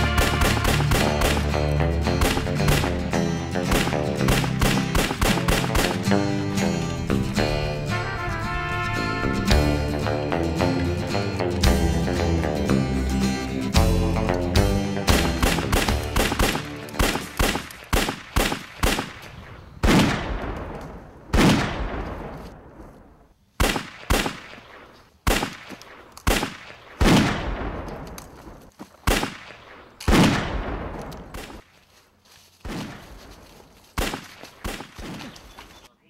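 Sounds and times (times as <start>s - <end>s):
gunshots with long echo: 0.0s - 6.2s, 15.0s - 22.7s, 23.6s - 28.2s, 29.0s - 31.6s, 34.0s - 35.2s.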